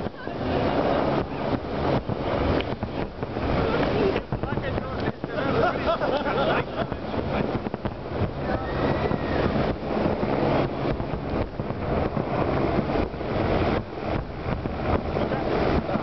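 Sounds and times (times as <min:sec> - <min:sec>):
low rumble: 0:00.0 - 0:16.0.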